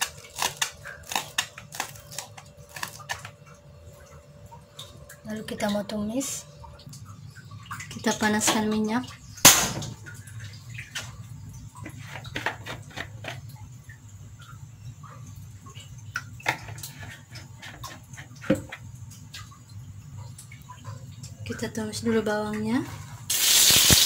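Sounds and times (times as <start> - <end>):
oil pouring into a wok: 23.3 - 24.0.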